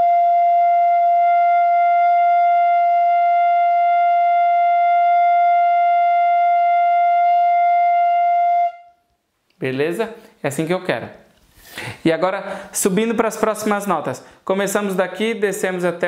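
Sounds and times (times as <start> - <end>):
fife holding a long note: 0.0 - 9.0.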